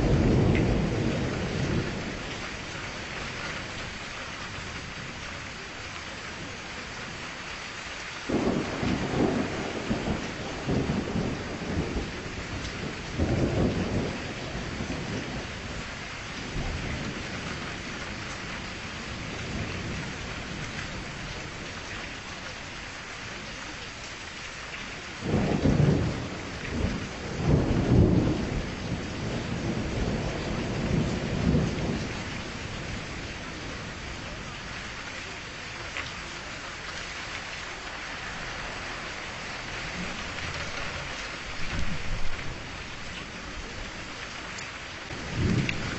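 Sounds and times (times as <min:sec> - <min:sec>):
thunder rumbling: 0:00.0 - 0:04.0, 0:08.3 - 0:21.8, 0:25.2 - 0:34.9, 0:38.0 - 0:44.0, 0:45.1 - 0:45.9
steady rain: 0:00.0 - 0:45.9.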